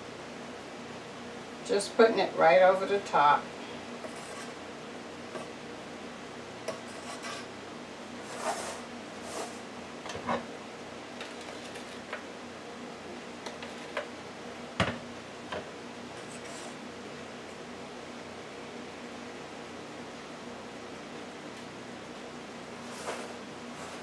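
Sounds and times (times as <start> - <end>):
knife spreading frosting: 4.0 - 4.6, 6.7 - 7.5
light clicks and scrapes: 11.2 - 12.2, 16.2 - 16.8.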